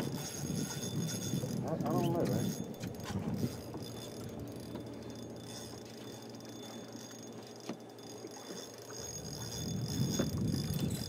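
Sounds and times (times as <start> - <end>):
fishing reel ticking and whirring: 0.0 - 11.0.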